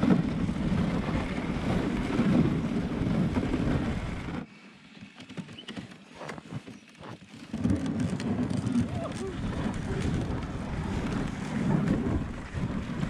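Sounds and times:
wind on microphone: 0.0 - 4.5, 7.5 - 13.0
sled rushing over snow: 0.0 - 13.0.

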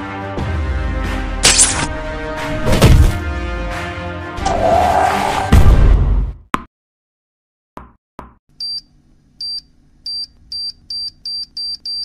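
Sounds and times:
music: 0.0 - 6.3.

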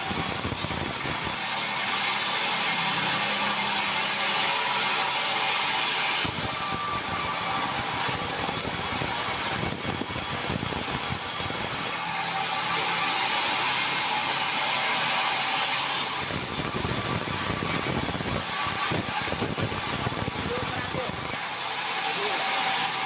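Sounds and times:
band saw ripping board: 0.0 - 13.8.

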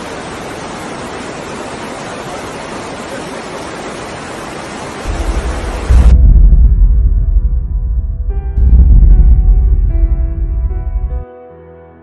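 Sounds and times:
floodwater rushing: 0.0 - 6.6.

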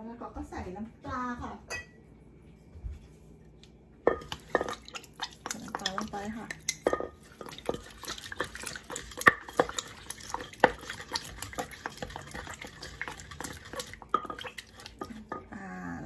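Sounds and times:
liquid pouring: 4.2 - 15.2.

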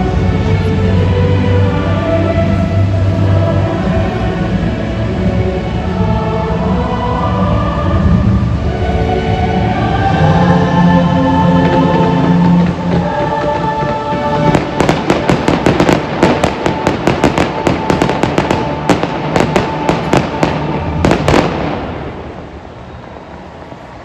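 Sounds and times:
loud show music: 0.0 - 22.2
fireworks rumble: 7.2 - 24.0
fireworks bangs and crackles: 11.6 - 23.2.

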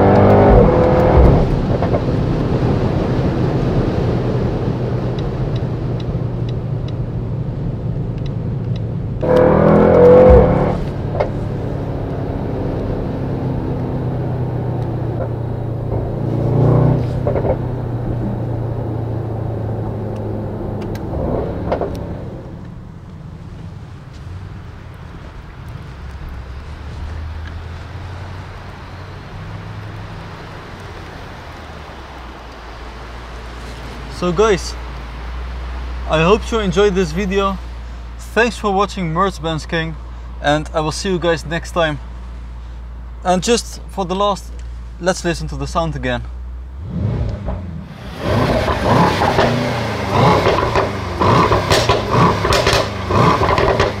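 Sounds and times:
car engine at low revs: 0.0 - 54.0
sharp exhaust cracks: 8.0 - 12.4, 42.6 - 54.0.

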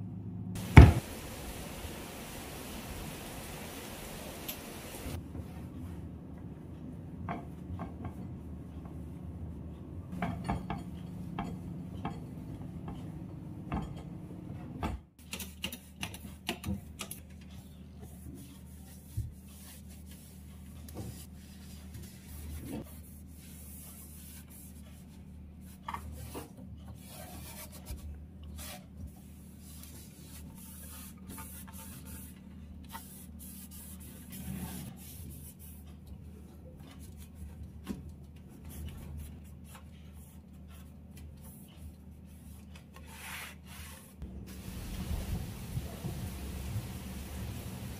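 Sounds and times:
cloth wiping surfaces: 18.1 - 26.4, 28.6 - 35.8, 42.3 - 47.9.

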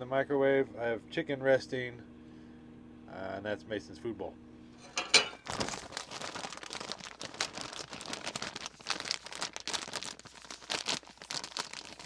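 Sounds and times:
plastic bag crinkling: 5.0 - 12.0.

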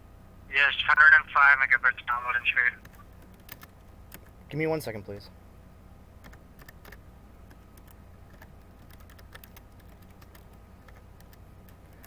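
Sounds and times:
steady low hum: 0.0 - 12.0
faint keyboard keystrokes: 6.2 - 12.0.

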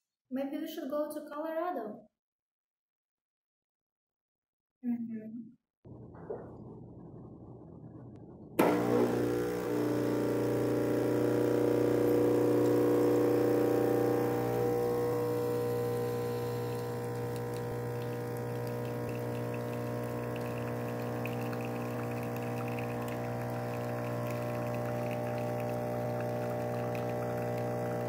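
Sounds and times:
espresso machine pump humming: 8.6 - 28.0.

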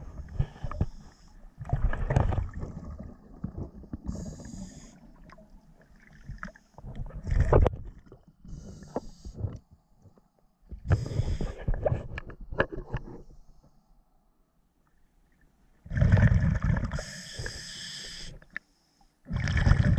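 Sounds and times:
exhaled bubbles gushing: 1.6 - 4.6, 15.9 - 17.0, 19.3 - 19.9
regulator inhale hiss: 4.1 - 5.2, 8.5 - 9.5, 10.9 - 11.6, 17.0 - 19.1.

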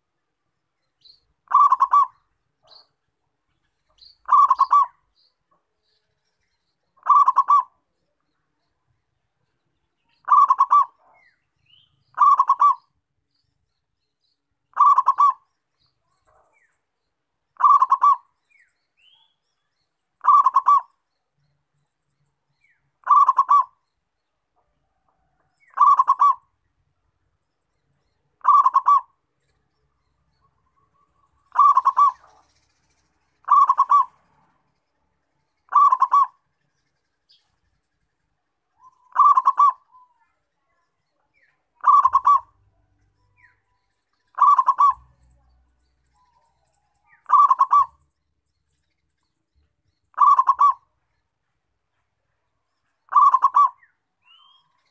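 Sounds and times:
dove cooing: 1.5 - 2.9, 4.2 - 5.0, 7.0 - 7.8, 10.2 - 11.3, 12.1 - 12.9, 14.7 - 15.4, 17.6 - 18.3, 20.2 - 20.9, 23.0 - 23.8, 24.9 - 26.5, 28.4 - 29.2, 31.5 - 32.4, 33.4 - 34.2, 35.7 - 36.4, 38.8 - 39.9, 41.8 - 42.6, 44.4 - 45.1, 47.1 - 48.0, 50.1 - 50.9, 53.1 - 53.8.

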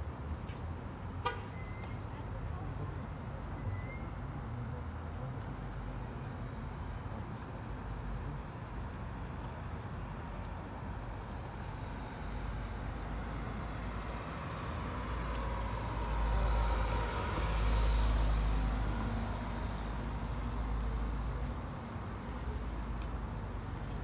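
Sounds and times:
low traffic rumble: 0.0 - 24.0
car driving past: 13.0 - 20.6.

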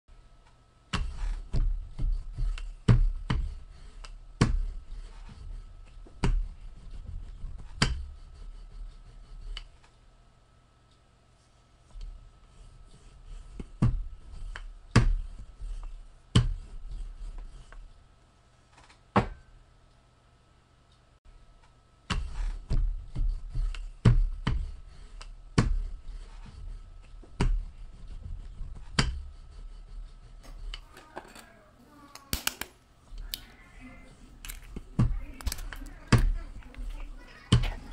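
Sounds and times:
faint high hum: 30.4 - 37.9.

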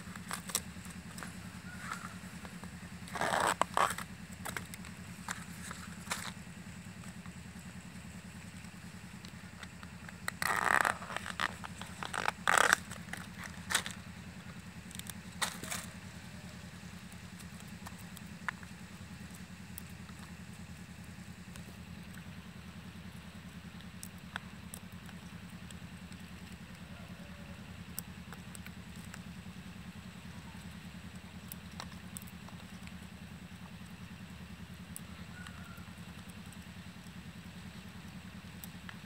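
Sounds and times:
banana flower being stripped: 0.0 - 6.4, 9.5 - 14.1
low mechanical hum: 0.0 - 39.0.

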